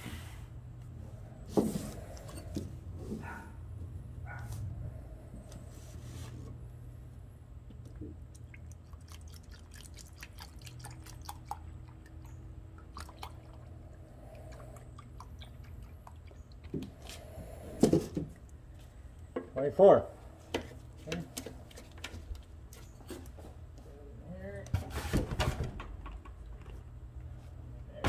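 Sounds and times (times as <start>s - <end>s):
low steady hum: 0.0s - 28.0s
liquid pouring into plastic cup: 7.8s - 12.2s.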